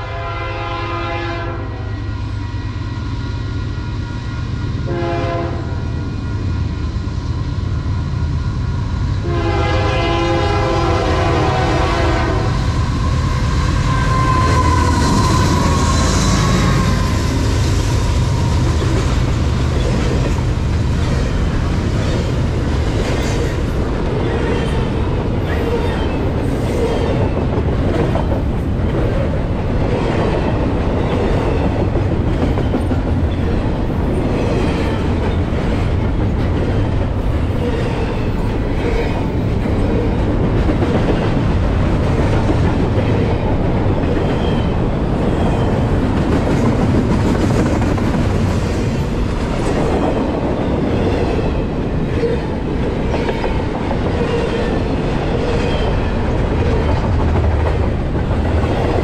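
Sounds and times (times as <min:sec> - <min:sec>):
locomotive horn blasts: 0:00.0 - 0:01.9, 0:04.9 - 0:05.7, 0:09.2 - 0:12.6
freight train rumbling past: 0:00.0 - 0:59.0
train wheels clattering: 0:12.8 - 0:59.0.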